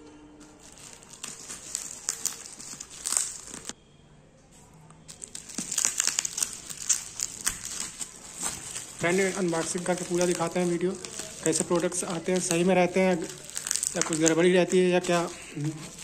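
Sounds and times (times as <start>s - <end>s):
bubble wrap crinkling: 0.4s - 3.8s, 4.6s - 16.0s.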